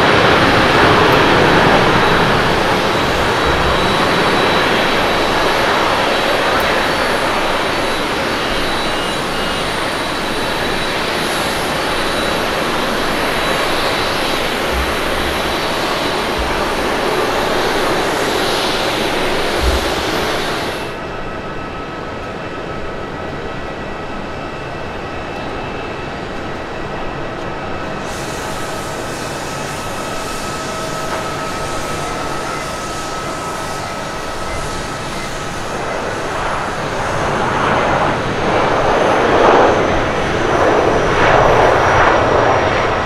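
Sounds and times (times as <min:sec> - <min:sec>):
jet engine whine: 0:00.0 - 0:43.0
jet engines rushing: 0:00.0 - 0:43.0.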